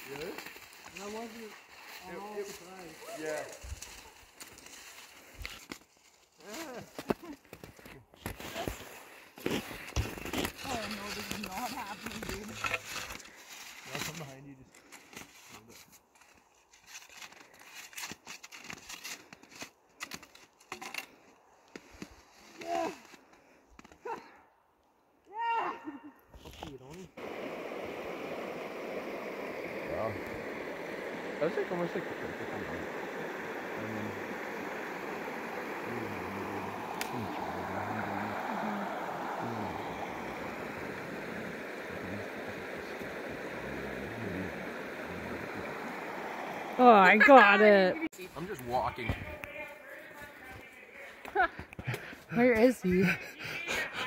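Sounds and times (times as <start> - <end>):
skis crunching on snow: 0.0 - 21.1, 21.7 - 24.0, 26.4 - 51.2
river running over stones: 27.2 - 48.1.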